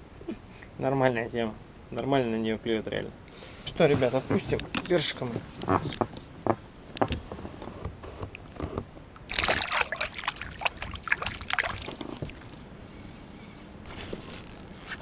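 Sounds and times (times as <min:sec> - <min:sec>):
river water splashing: 0:09.2 - 0:12.6.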